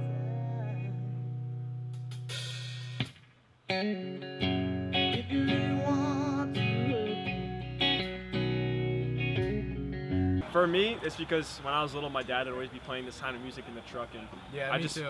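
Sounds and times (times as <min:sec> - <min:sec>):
rock band playing live: 0:03.7 - 0:10.4
electric guitar chord ringing: 0:03.7 - 0:10.5.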